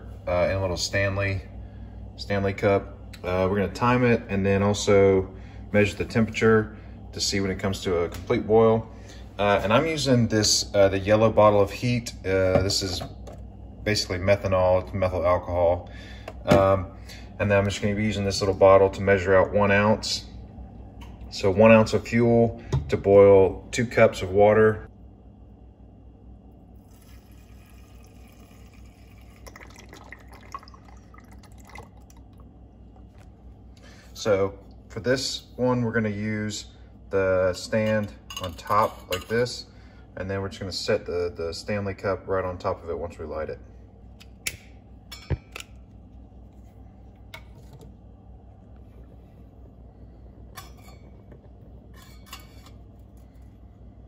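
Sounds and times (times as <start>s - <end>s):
steady low hum: 0.0s - 54.0s
liquid trickling from squeeze bottle: 26.8s - 32.2s
liquid drips: 26.8s - 33.2s.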